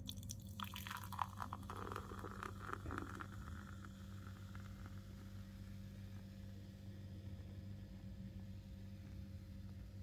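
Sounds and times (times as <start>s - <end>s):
beer pouring into glass: 0.0s - 5.5s.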